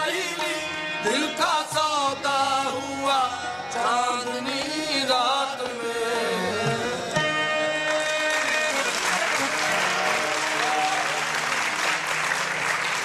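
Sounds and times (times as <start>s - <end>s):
harmonium held chord: 0.0s - 13.0s
audience applause: 7.8s - 13.0s.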